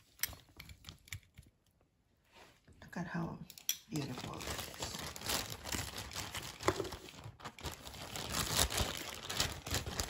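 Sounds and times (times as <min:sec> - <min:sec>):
plastic packaging crinkling: 0:03.9 - 0:10.0.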